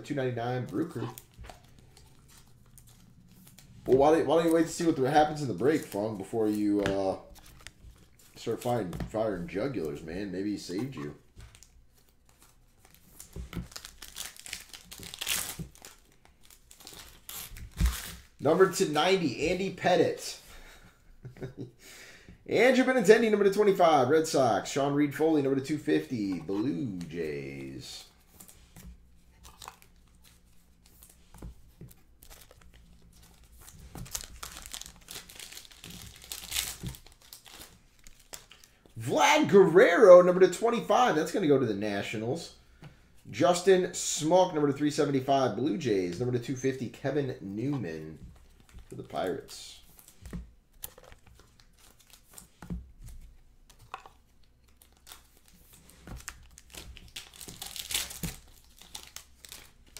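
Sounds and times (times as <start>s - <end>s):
foil wrappers crinkling and tearing: 10.8s - 18.5s, 29.4s - 38.9s, 48.4s - 52.7s, 53.6s - 59.9s.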